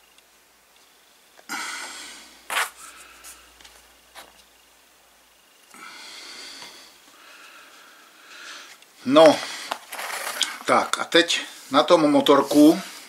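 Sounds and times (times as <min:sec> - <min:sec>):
person sniffing: 0:01.5 - 0:03.5.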